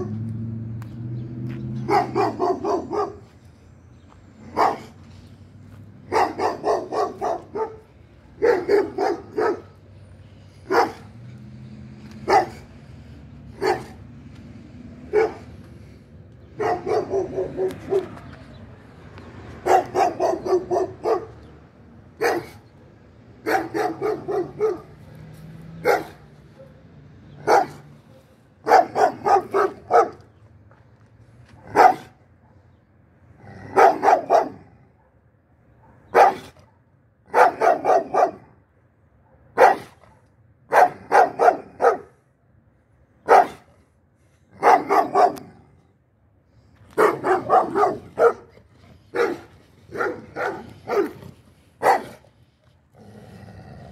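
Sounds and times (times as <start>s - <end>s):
dog barking: 1.8s - 3.3s, 4.5s - 5.0s, 6.0s - 9.8s, 10.6s - 11.1s, 12.2s - 12.7s, 13.5s - 14.0s, 15.1s - 15.5s, 16.5s - 18.2s, 19.6s - 21.4s, 22.2s - 30.3s, 31.6s - 32.7s, 33.7s - 38.6s, 39.2s - 42.2s, 43.2s - 43.7s, 44.6s - 45.6s, 46.9s - 51.2s, 51.8s - 52.3s.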